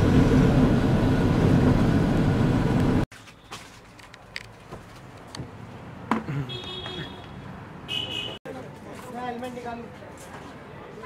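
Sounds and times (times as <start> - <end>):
car road and engine noise: 0.0 - 8.8
street background: 0.0 - 11.0.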